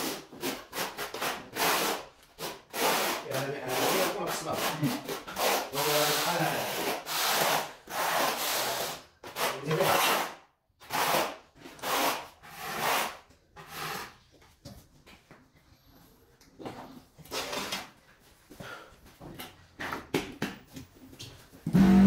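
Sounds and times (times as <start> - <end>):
trowel scraping tile adhesive: 0.0 - 14.2.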